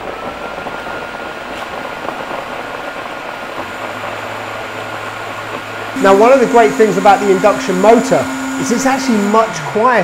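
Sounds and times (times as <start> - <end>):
low hum: 0.0 - 9.8
blender whirring: 5.4 - 10.0.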